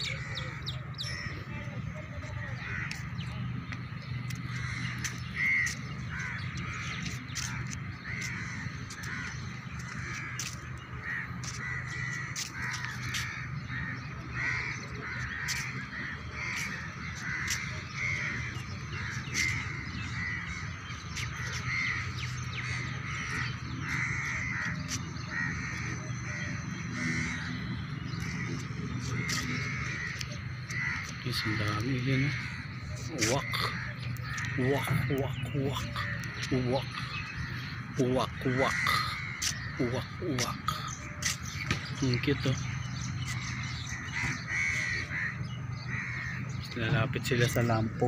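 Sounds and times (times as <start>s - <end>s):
crows cawing: 2.0s - 47.9s.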